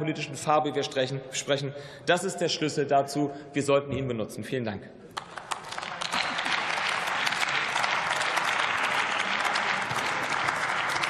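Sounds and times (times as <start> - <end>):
crowd applauding: 5.2 - 11.0.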